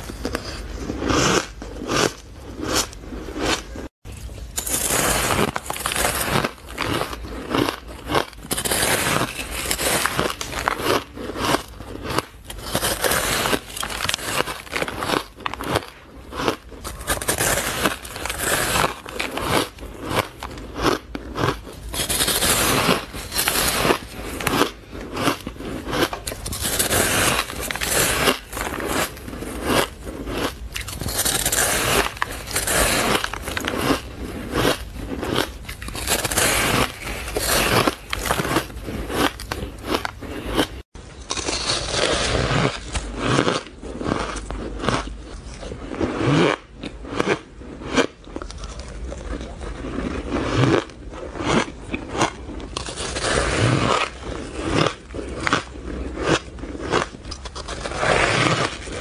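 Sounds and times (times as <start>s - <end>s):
chewing crunchy ice: 0.0s - 59.0s.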